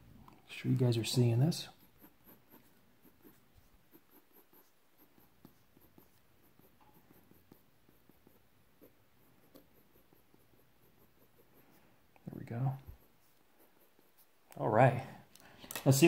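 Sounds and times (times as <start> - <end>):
pencil scratching on paper: 0.9 - 14.5.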